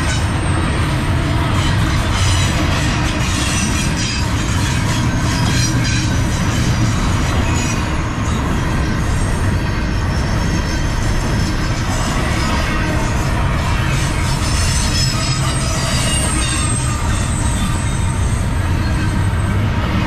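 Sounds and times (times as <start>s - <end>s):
steel wheels rumbling on rail: 0.0s - 20.0s
metallic wheel squeal: 1.6s - 8.4s, 13.9s - 19.6s.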